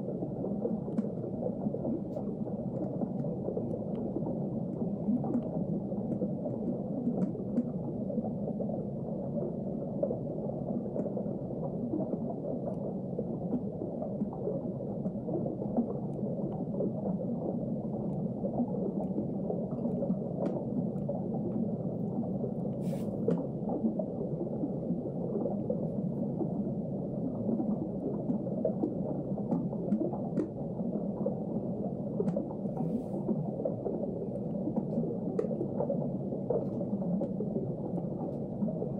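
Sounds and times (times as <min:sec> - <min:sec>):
underwater rumble and gurgle: 0:00.0 - 0:38.9
faint ticks: 0:00.8 - 0:01.3, 0:02.1 - 0:07.8, 0:10.9 - 0:11.2, 0:19.0 - 0:21.6, 0:22.7 - 0:23.5, 0:28.2 - 0:30.6, 0:32.2 - 0:33.4, 0:34.3 - 0:37.4.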